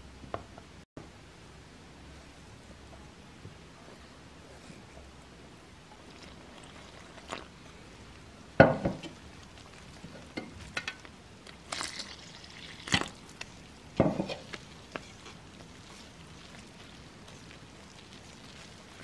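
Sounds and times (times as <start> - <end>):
water pouring: 5.9 - 7.6, 11.5 - 13.3
whisk stirring in metal bowl: 14.1 - 19.0.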